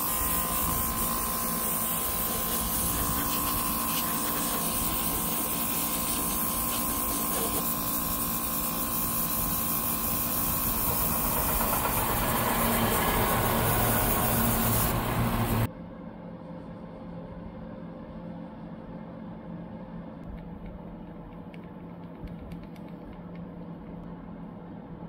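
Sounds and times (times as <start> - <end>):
airbrush spraying hiss: 0.0 - 15.7
steady low hum: 0.0 - 25.0.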